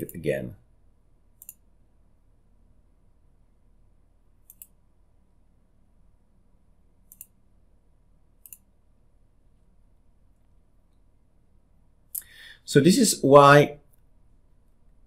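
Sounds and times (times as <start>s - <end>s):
faint low hum: 0.0s - 15.0s
computer mouse clicking: 1.4s - 1.7s, 4.4s - 4.8s, 7.0s - 7.4s, 8.4s - 8.7s.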